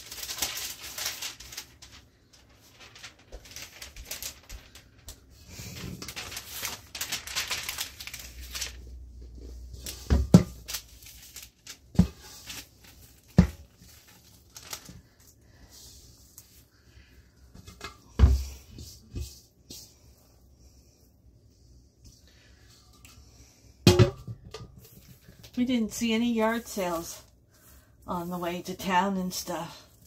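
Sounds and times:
parchment paper crinkling: 0.0 - 17.3, 24.8 - 30.0
dough thumping onto paper: 9.8 - 14.1.

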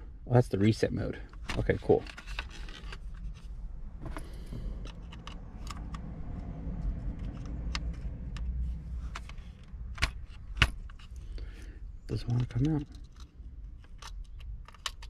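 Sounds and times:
steady low rumble: 0.0 - 15.0
plastic clicks and rattles: 4.0 - 11.2, 12.2 - 15.0.

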